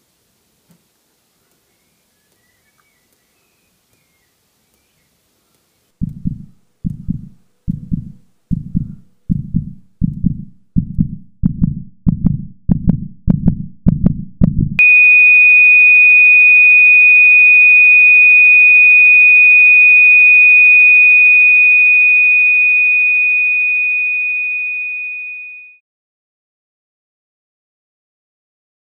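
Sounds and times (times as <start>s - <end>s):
heartbeat thumps: 6.0s - 14.8s
steady high-pitched tone: 14.8s - 25.7s.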